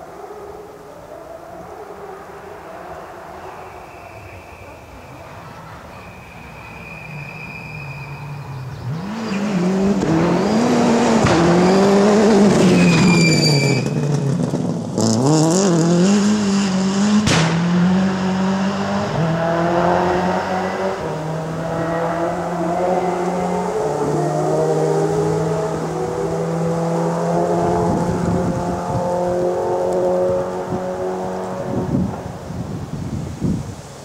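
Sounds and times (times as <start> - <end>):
rally car engine revving: 5.6 - 32.5
sharp crack: 17.2 - 17.9.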